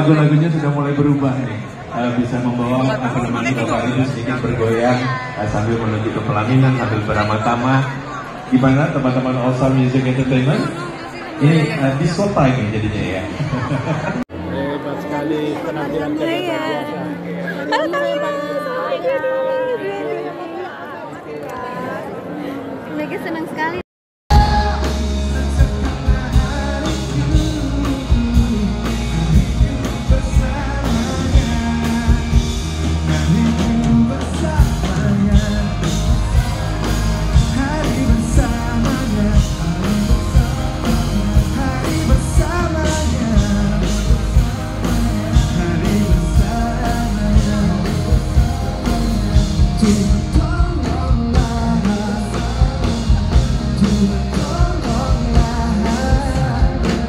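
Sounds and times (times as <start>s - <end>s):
drum beat: 24.3s - 57.0s
person singing into a microphone: 24.3s - 57.0s
pop-rock band playing: 24.3s - 57.0s.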